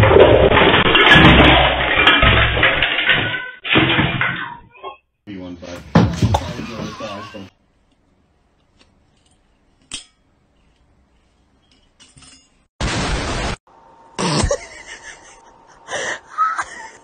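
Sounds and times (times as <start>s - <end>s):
loud burst of noise: 12.8s - 14.6s.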